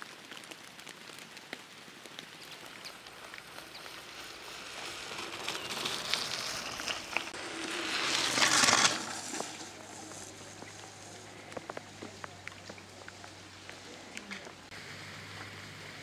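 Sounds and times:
bike tyres crunching over wet gravel: 0:00.0 - 0:16.0
light rain pattering: 0:00.0 - 0:16.0.

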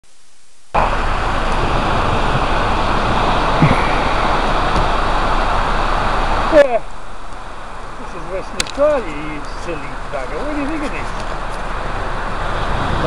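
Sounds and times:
wind on microphone: 0:11.3 - 0:13.0.

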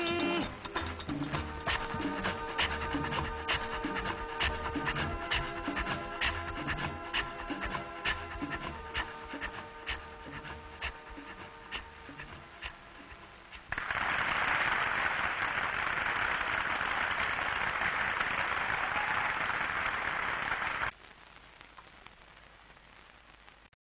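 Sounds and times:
song ending: 0:00.0 - 0:13.3
audience applauding: 0:13.7 - 0:20.9.

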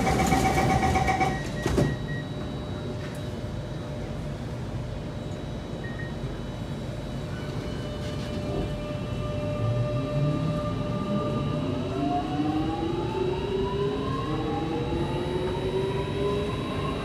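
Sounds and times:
steady hum inside train car: 0:00.0 - 0:17.0
door-closing warning beeps: 0:01.0 - 0:03.4, 0:05.8 - 0:06.3.

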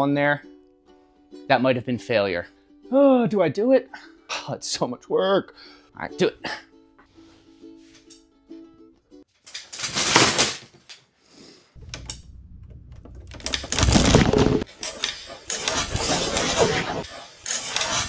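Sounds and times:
wooden rafters creaking and cracking: 0:11.8 - 0:18.0.

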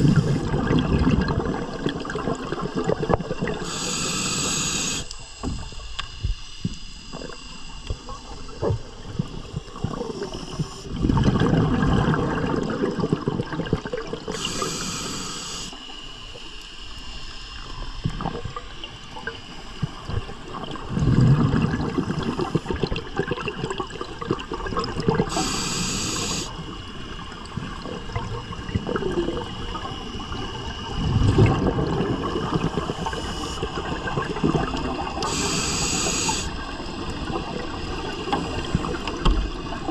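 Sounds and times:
exhaled bubbles rushing: 0:00.0 - 0:03.7, 0:07.1 - 0:14.6, 0:18.1 - 0:25.6, 0:26.2 - 0:39.9
regulator inhalation hiss: 0:03.6 - 0:07.9, 0:14.3 - 0:16.2, 0:25.3 - 0:26.8, 0:32.6 - 0:33.9, 0:35.2 - 0:37.0.

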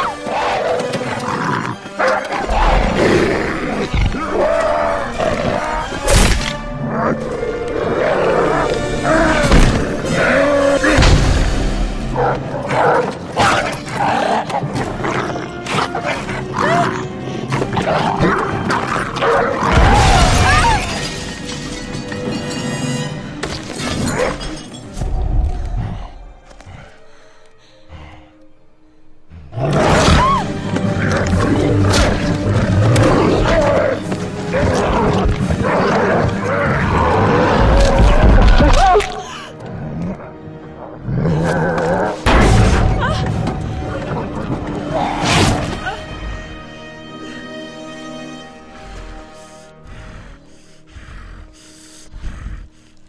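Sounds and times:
snarling and roaring: 0:00.0 - 0:20.9, 0:29.4 - 0:42.4
dramatic orchestral music: 0:00.0 - 0:53.0.

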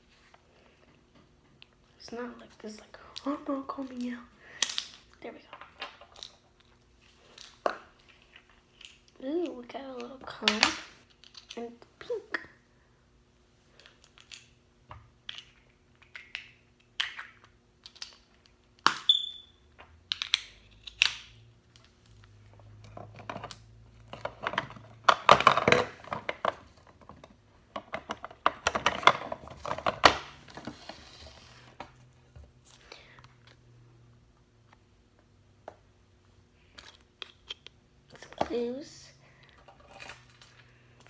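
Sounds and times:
plastic toys clicking and tapping: 0:15.2 - 0:19.1, 0:19.8 - 0:22.0, 0:22.8 - 0:30.3.

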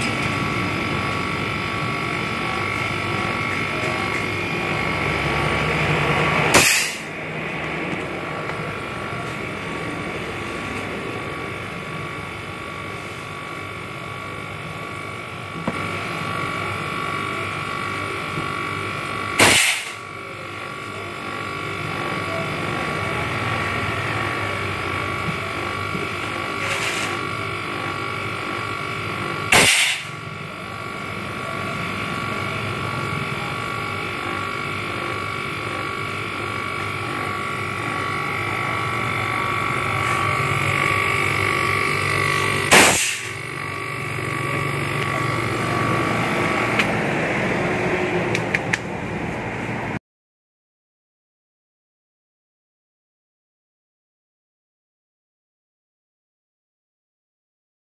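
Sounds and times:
machine running with high whine: 0:00.0 - 0:50.0
loud short blasts: 0:06.5 - 0:07.1, 0:29.5 - 0:30.1, 0:42.5 - 0:43.4.

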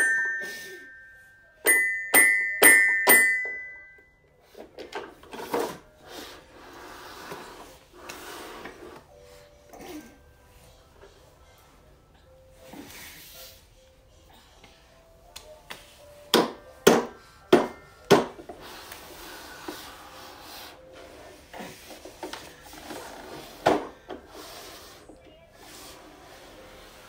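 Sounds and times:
toys rubbing and shuffling: 0:04.5 - 0:09.2, 0:18.4 - 0:27.0.

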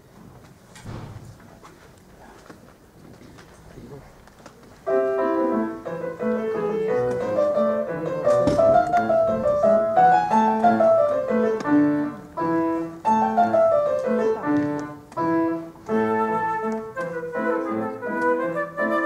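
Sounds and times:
grand piano classical accompaniment: 0:04.7 - 0:19.0.

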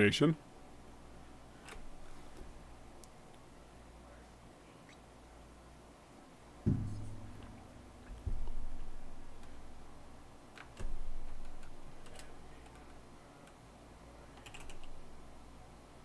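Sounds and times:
dull low thumps: 0:06.7 - 0:09.7
keyboard typing: 0:14.4 - 0:15.0.

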